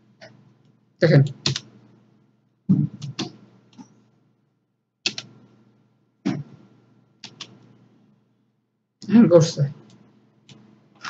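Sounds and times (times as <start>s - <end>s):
faint electrical hum: 0.0s - 11.0s
computer mouse clicks: 2.7s - 4.0s, 5.1s - 5.4s, 7.2s - 7.7s, 9.8s - 10.6s.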